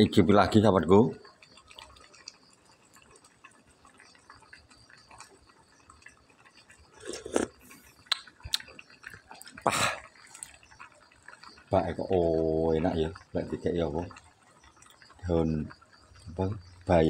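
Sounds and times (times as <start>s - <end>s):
pot simmering on gas burner: 0.0s - 17.0s
slurping broth from spoon: 6.7s - 9.3s
lip smacks: 7.0s - 10.6s.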